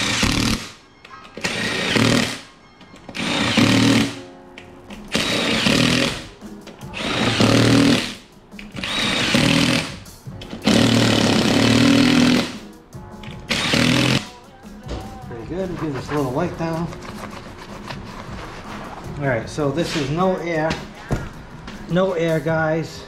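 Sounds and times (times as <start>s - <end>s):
cordless drill bursts: 0.0s - 0.7s, 1.4s - 2.4s, 3.1s - 4.2s, 5.1s - 6.2s, 6.9s - 8.2s, 8.8s - 10.0s, 10.6s - 12.6s, 13.5s - 14.3s.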